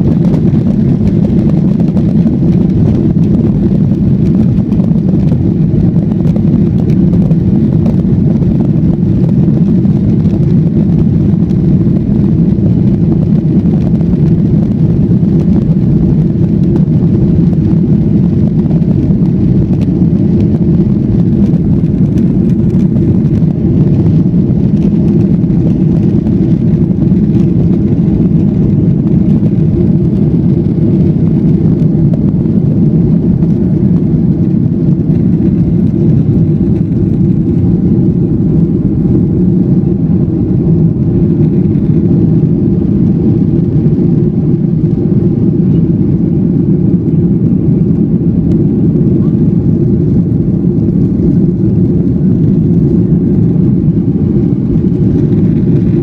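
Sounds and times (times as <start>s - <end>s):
jet engine cabin rumble: 0.0s - 56.0s.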